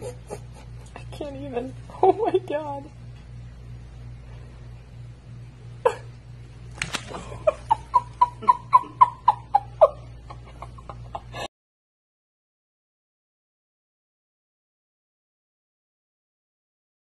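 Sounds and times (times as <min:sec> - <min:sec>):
person giggling: 0:00.0 - 0:01.1, 0:05.8 - 0:06.2, 0:07.0 - 0:11.5.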